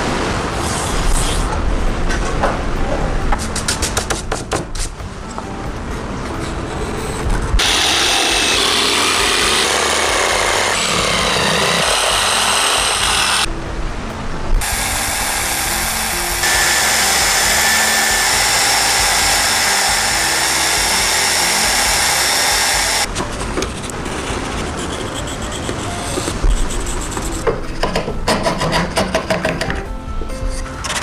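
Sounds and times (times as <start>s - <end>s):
background music: 0.0s - 31.0s
belt sander grinding wood: 7.6s - 13.5s, 14.6s - 23.1s.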